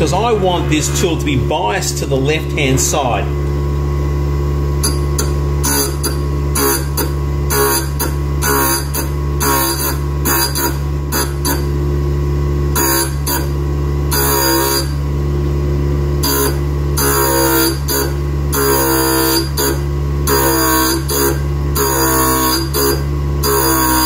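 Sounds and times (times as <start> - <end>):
grinder motor humming: 0.0 - 24.0
tool grinding on wheel: 4.8 - 11.8, 12.7 - 15.0, 16.2 - 24.0.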